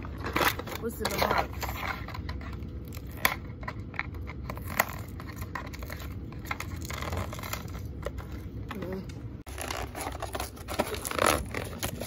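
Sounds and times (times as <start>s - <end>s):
cardboard box rustling: 9.5s - 12.0s.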